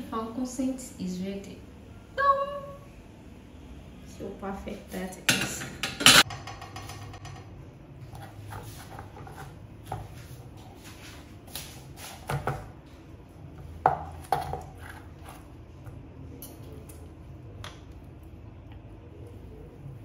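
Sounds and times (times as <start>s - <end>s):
low steady hum: 0.0s - 20.0s
knife and fork scraping board: 8.1s - 10.2s, 14.3s - 15.4s.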